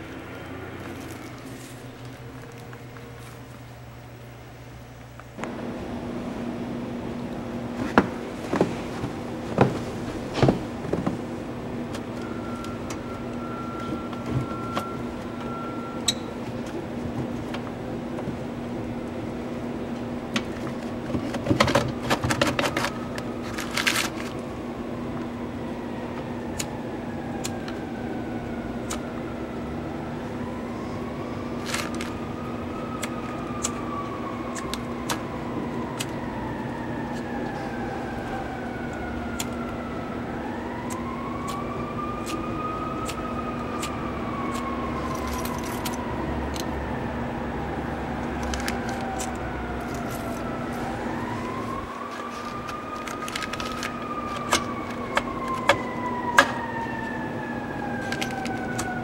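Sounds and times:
distant siren: 0.0 - 4.3, 5.4 - 59.0
steady low hum: 0.0 - 59.0
foil crinkling and clicks: 20.4 - 24.5, 31.5 - 32.2, 48.3 - 57.0, 57.9 - 59.0.

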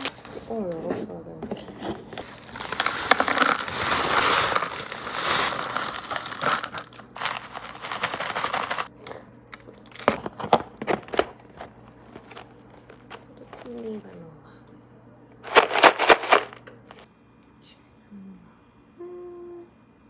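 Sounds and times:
baking paper crinkling: 0.0 - 0.9, 1.8 - 8.9, 9.9 - 14.0, 15.5 - 16.6
granola pouring crunchy rustle: 2.2 - 8.9, 15.5 - 16.5.

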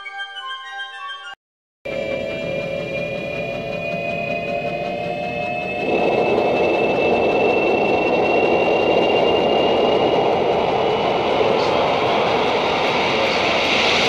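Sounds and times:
faint high whine: 1.9 - 14.0
steady rumbling roar: 2.0 - 14.0.

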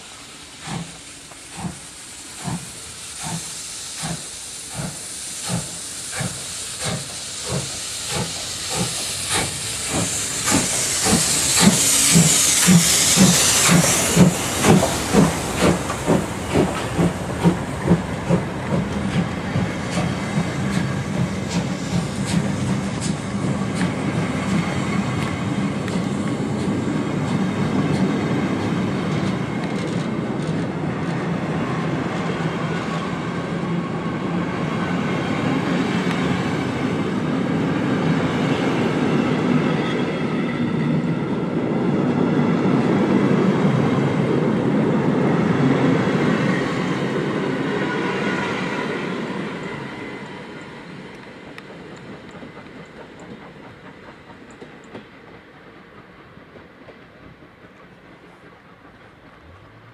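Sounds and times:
steam locomotive exhaust beats: 0.0 - 59.9
train coaches rumbling past: 0.0 - 59.9
wheels clicking over rail joints: 50.6 - 59.9.

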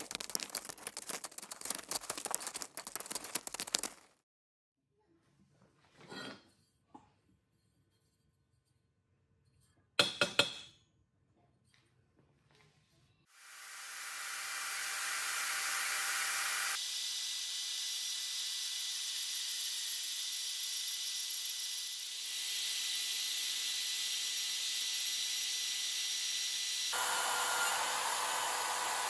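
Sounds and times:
band saw cutting steel: 13.4 - 29.0.

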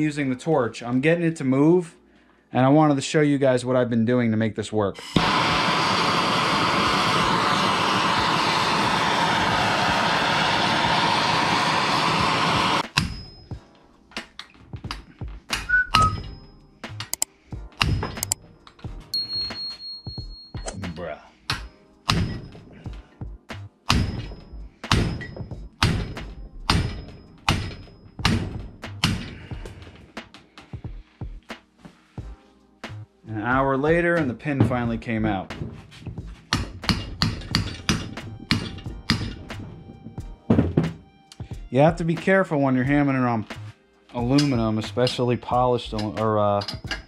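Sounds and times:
gas torch roaring: 5.0 - 13.0.

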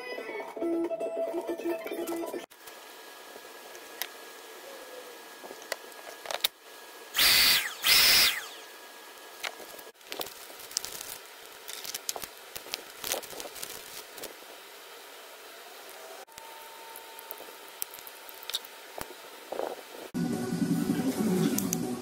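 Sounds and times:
motor running bursts: 7.2 - 8.8
plastic bag crinkling: 10.0 - 14.3.

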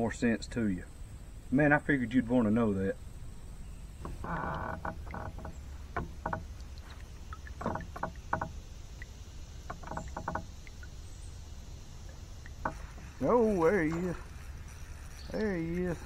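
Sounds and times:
low steady rumble: 0.0 - 16.0
fishing rod clicks and knocks: 4.0 - 9.1, 9.7 - 10.9.

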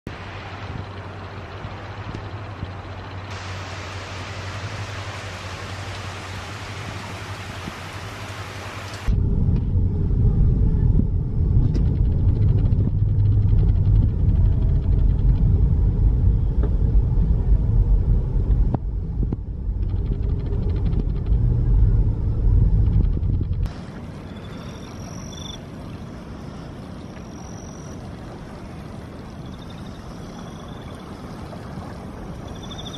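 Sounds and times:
heavy rain hissing: 0.1 - 9.1.

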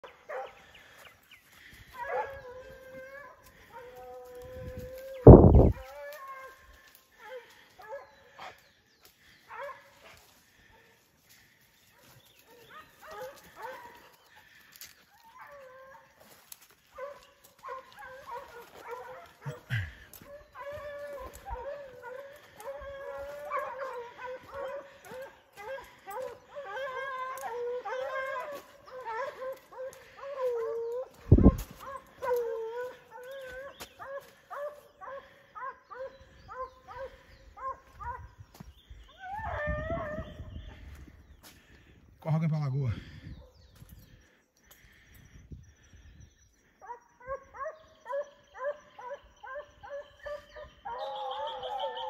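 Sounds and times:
hound baying: 1.6 - 8.6, 9.4 - 38.4, 46.8 - 52.0.

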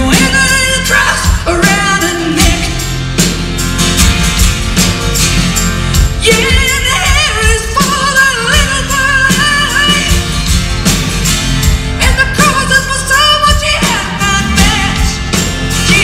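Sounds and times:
woman singing with vibrato: 0.0 - 3.0, 6.1 - 10.3, 12.0 - 16.0
live rock band: 0.0 - 16.0.

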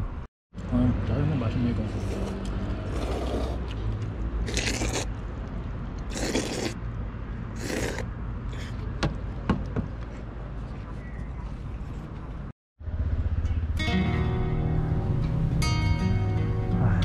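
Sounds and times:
noodles slurped loudly: 1.9 - 3.7, 4.4 - 5.1, 6.0 - 6.8, 7.5 - 8.1.

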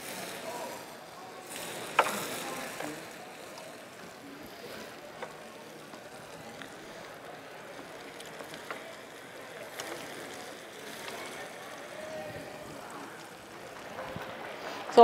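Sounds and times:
vegetables sizzling in a wok: 1.4 - 3.8.

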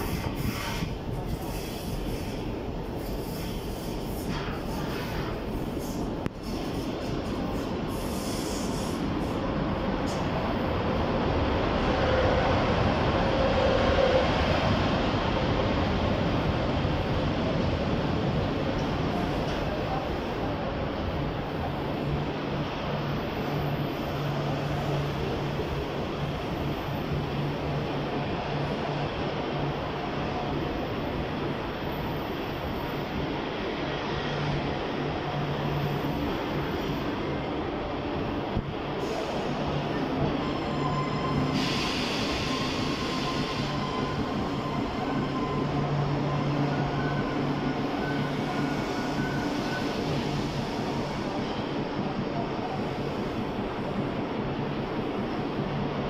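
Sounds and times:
train coaches rolling past: 0.0 - 56.0
faint brake squeal: 40.1 - 50.4
burst of hiss: 41.5 - 43.7.

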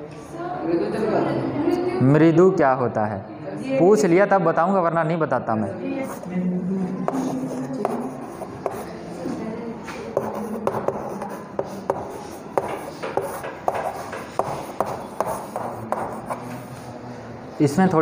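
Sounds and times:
chalk tapping on board: 7.0 - 9.0, 9.9 - 16.8
chalk scratching on chalkboard: 7.0 - 17.0.

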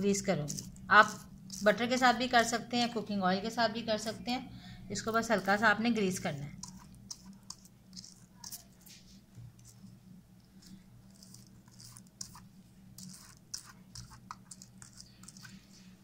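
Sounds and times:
pastry brush rustling on paper: 0.0 - 3.1, 5.0 - 9.9, 10.5 - 16.0.

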